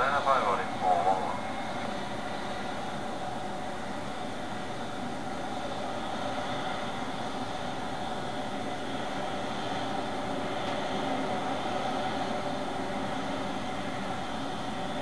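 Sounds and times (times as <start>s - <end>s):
jet engines whining: 0.0s - 3.4s.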